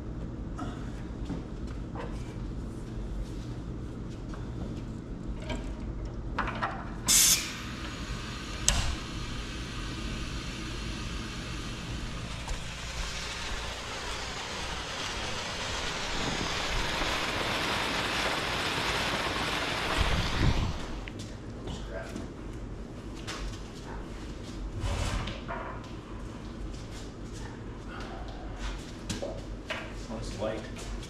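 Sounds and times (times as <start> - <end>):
short loud hiss: 7.1 - 7.9
water from hose splashing onto concrete: 7.1 - 21.1.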